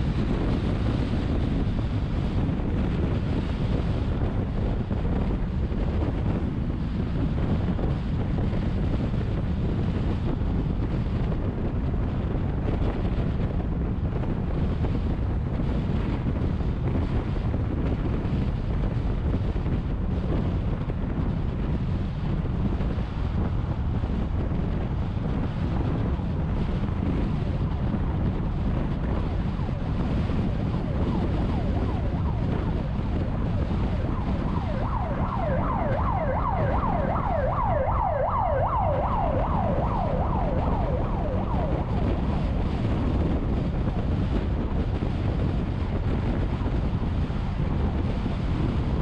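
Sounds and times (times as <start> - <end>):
tyre and wind rumble: 0.0 - 49.0
ambulance siren yelping: 29.3 - 42.8.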